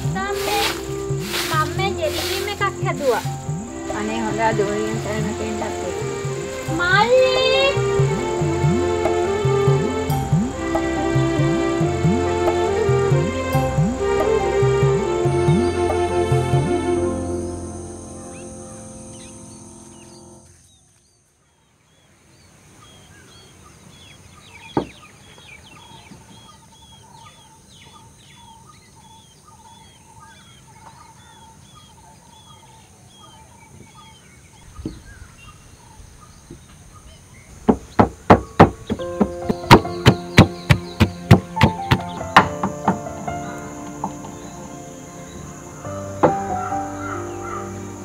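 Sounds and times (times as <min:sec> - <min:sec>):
bird trill: 0:00.0 - 0:09.0, 0:22.8 - 0:48.0
bird chirping: 0:00.0 - 0:48.0
birds calling: 0:00.0 - 0:48.0
wooden pestle pounding in mortar: 0:37.7 - 0:43.2
knocks: 0:37.7 - 0:44.4, 0:46.2 - 0:46.6.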